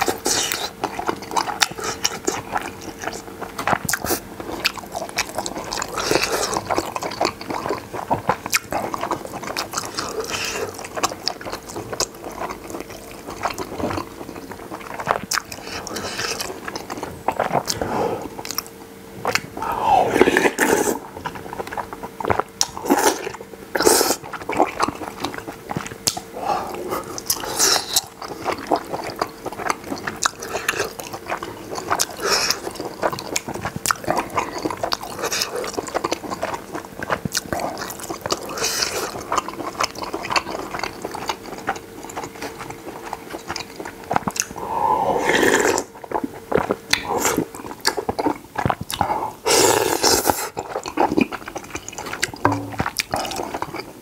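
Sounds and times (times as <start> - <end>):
wet chewing and mouth clicks: 0.0 - 54.0
slurping noodles: 19.4 - 53.8.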